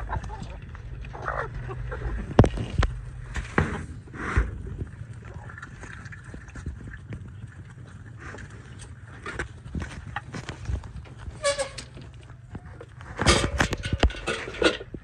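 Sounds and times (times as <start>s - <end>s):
chickens calling faintly: 0.0s - 2.6s
cage door and waterer rattling: 11.0s - 12.2s, 13.2s - 15.0s.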